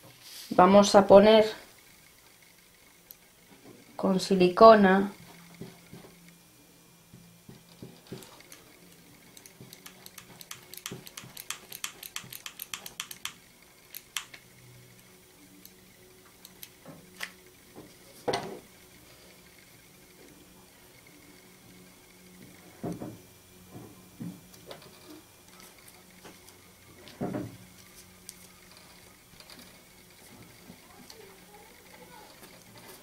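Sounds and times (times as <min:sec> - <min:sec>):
glue gun trigger clicks: 0:09.4 - 0:14.4.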